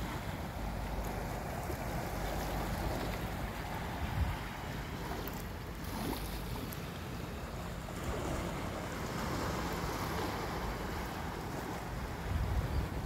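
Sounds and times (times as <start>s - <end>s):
wind noise on microphone: 3.7s - 5.2s, 11.5s - 13.0s.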